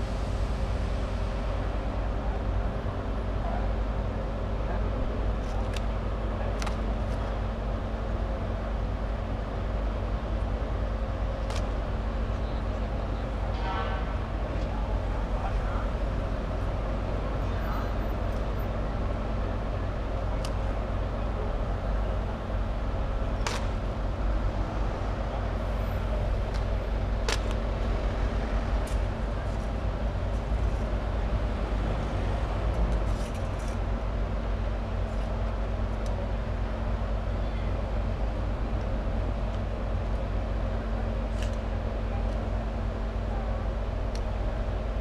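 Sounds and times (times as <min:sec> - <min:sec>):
diesel crane engine humming: 0:00.0 - 0:45.0.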